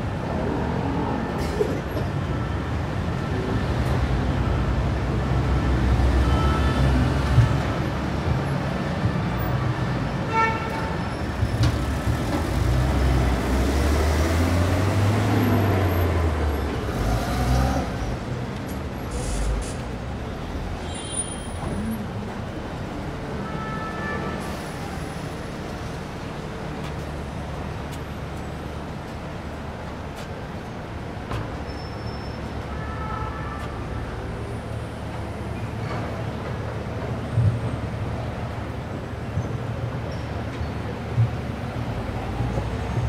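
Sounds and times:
car and bus engines passing: 0:00.0 - 0:23.5, 0:24.2 - 0:32.8, 0:33.6 - 0:43.0
brief high squeaks: 0:31.7 - 0:32.5.

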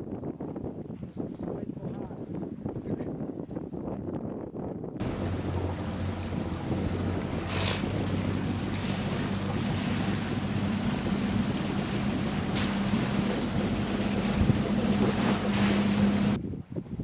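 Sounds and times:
wind rumbling on microphone: 0:00.0 - 0:17.0
boat motor humming: 0:05.0 - 0:16.4.

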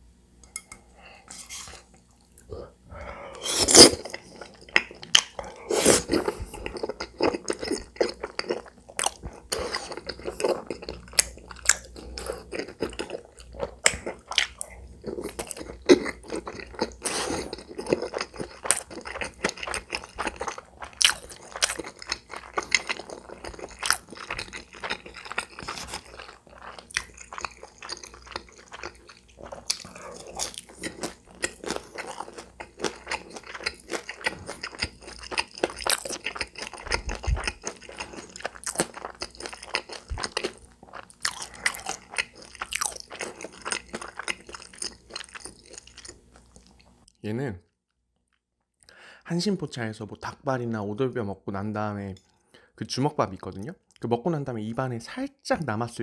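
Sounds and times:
crunchy chewing of food: 0:03.4 - 0:47.0.

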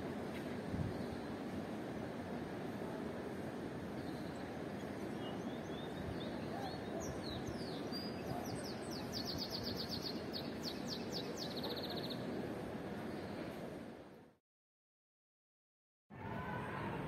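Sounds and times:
outdoor background noise: 0:00.0 - 0:14.4, 0:16.1 - 0:17.0
songbird singing: 0:04.0 - 0:12.3.

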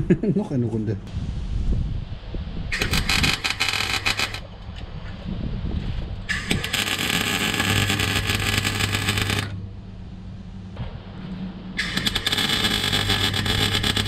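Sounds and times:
welder low hum: 0:01.0 - 0:14.0
welding arc crackling: 0:02.7 - 0:04.4, 0:06.3 - 0:09.6, 0:11.8 - 0:14.0.

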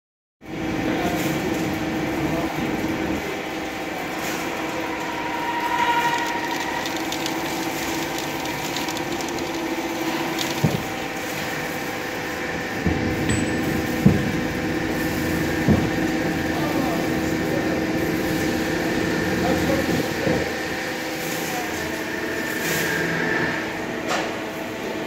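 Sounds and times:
lathe spindle running: 0:04.9 - 0:11.4.

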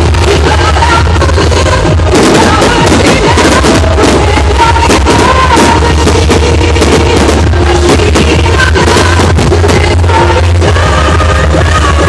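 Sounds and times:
fireworks bursting: 0:00.0 - 0:12.0
loud music with singing: 0:00.0 - 0:12.0.

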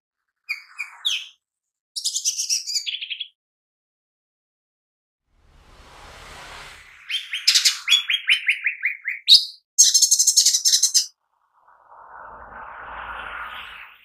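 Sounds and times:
bird singing chirps and trill: 0:00.4 - 0:01.4, 0:02.0 - 0:03.4, 0:07.0 - 0:11.2.

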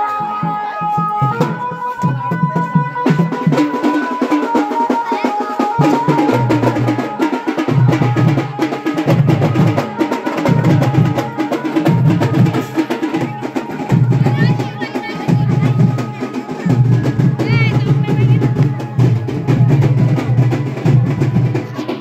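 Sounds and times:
drum strokes: 0:00.0 - 0:22.0
piping wind instrument melody: 0:00.0 - 0:22.0.

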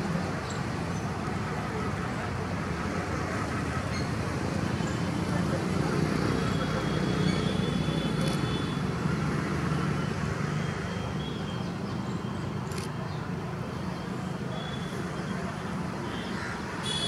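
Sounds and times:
distant road traffic rumble: 0:00.0 - 0:17.0.

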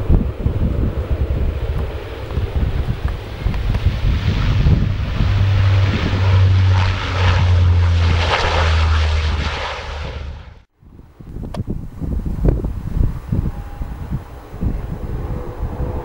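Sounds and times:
propeller plane engines droning: 0:00.0 - 0:10.7.

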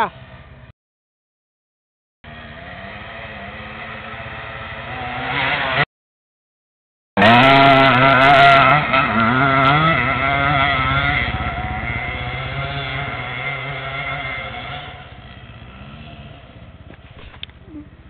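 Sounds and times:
dirt bike engine revving: 0:02.3 - 0:05.9, 0:07.2 - 0:17.4.

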